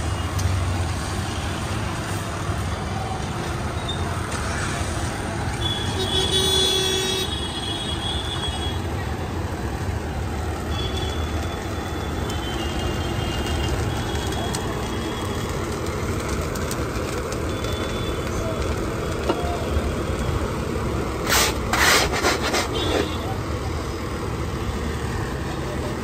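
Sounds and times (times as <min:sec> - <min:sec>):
street traffic rumble: 0:00.0 - 0:26.0
scraper stirring rice in sand: 0:21.2 - 0:23.1.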